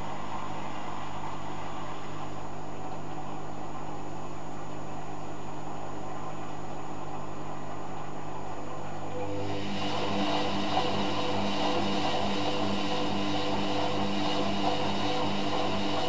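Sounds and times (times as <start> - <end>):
washing machine motor hum: 0.0 - 16.0.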